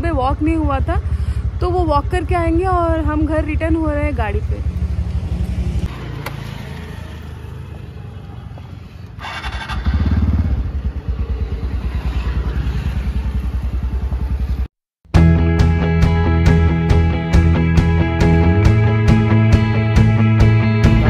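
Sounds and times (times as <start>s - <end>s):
scooter engine idling: 0.0s - 14.7s
scooter starter whir: 9.1s - 10.6s.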